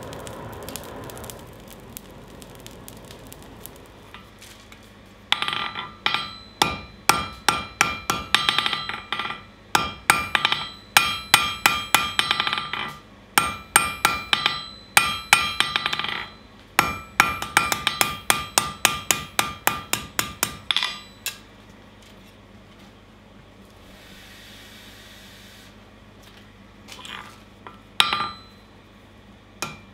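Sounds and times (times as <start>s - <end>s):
hammer striking steel on anvil: 5.3s - 21.5s, 27.7s - 28.7s, 29.6s - 29.9s.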